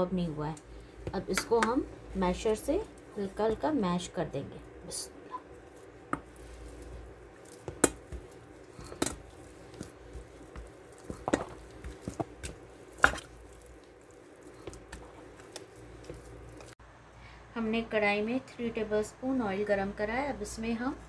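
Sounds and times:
masher mashing potatoes: 0.0s - 16.8s.

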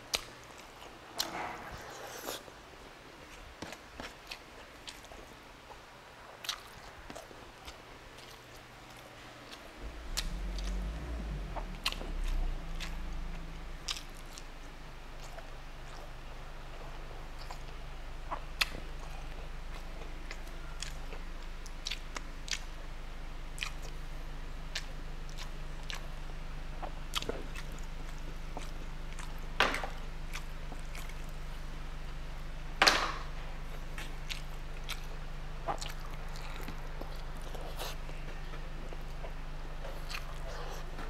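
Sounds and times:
close chewing food: 0.0s - 2.5s, 3.2s - 41.0s
low hum: 8.7s - 41.0s.

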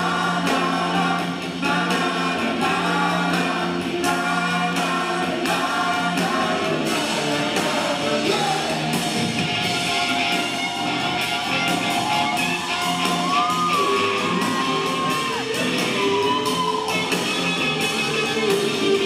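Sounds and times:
live rock band playing: 0.0s - 19.0s
audience shouting and whooping: 8.3s - 19.0s.

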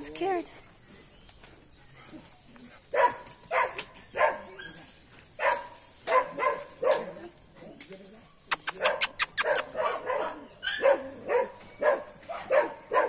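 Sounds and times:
dog barking: 2.9s - 4.8s, 5.4s - 7.2s, 8.8s - 13.0s.

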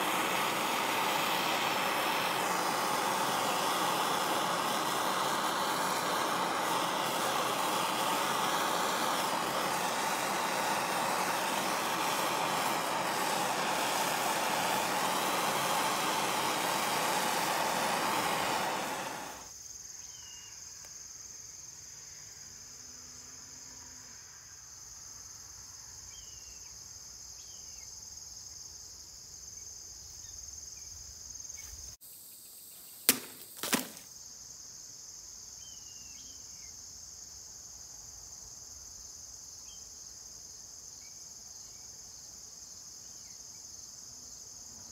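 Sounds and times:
gas torch flame hissing: 0.0s - 19.5s
crickets chirring: 0.0s - 44.9s
knife chopping plastic bottle: 33.1s - 34.0s.

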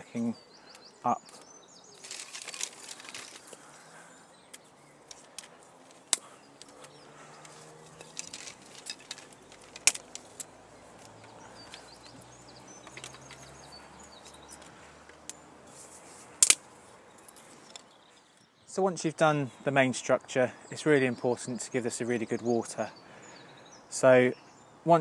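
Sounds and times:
dry twigs snapping: 0.7s - 3.8s, 4.5s - 15.4s, 16.2s - 16.7s
sticks rustling and rattling: 1.2s - 17.9s.

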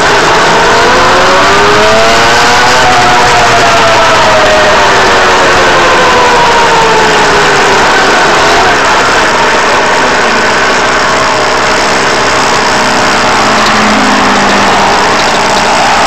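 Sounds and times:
scooter two-stroke engine running: 0.0s - 16.0s.

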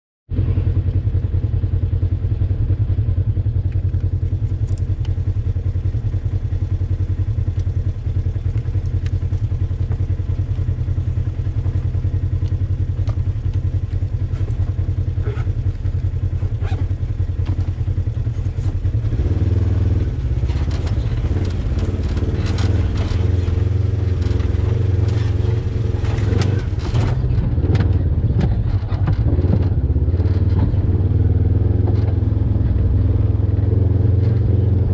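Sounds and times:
engine running at low speed: 0.3s - 34.9s
knocks and scraping over rock: 16.6s - 30.8s.

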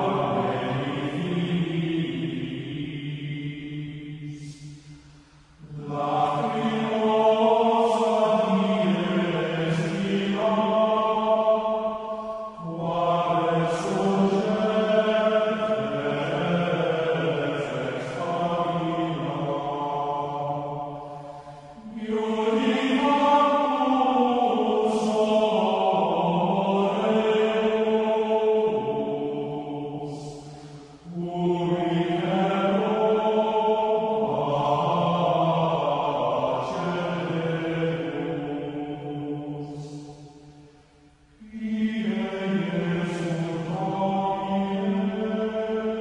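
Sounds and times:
chant-like voices holding notes: 0.0s - 46.0s.

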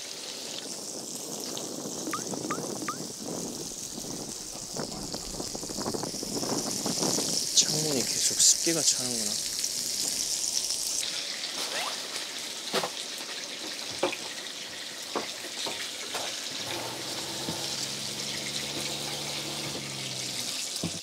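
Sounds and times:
meat sizzling in a pan: 0.0s - 21.0s
low hum: 2.2s - 7.6s.

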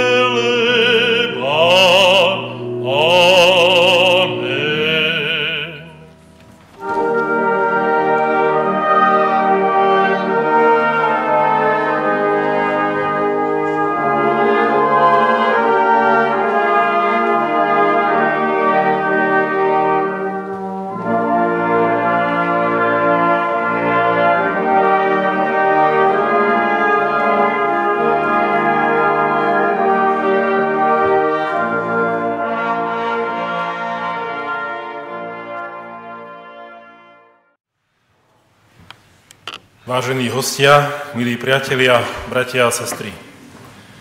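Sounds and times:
brass band playing chords: 0.0s - 37.4s.

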